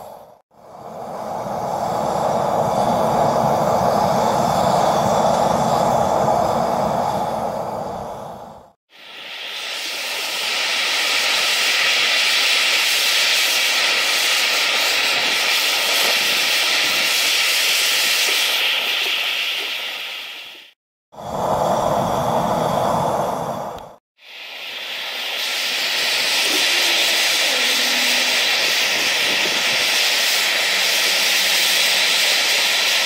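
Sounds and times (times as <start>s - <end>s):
deep gas flame roar: 0.0s - 8.8s, 21.1s - 24.0s, 24.7s - 33.0s
hand torch hissing: 0.0s - 33.0s.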